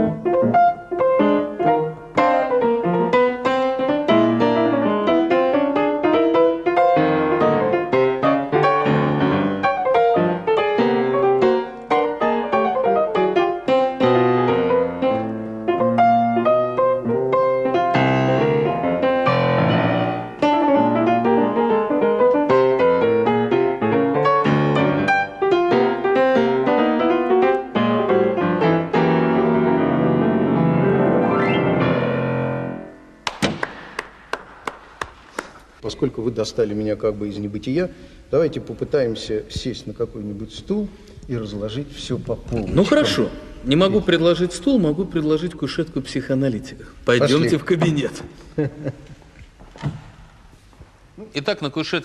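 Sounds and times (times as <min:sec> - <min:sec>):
fast piano playing: 0:00.0 - 0:33.2
sharp knocks: 0:33.2 - 0:35.6.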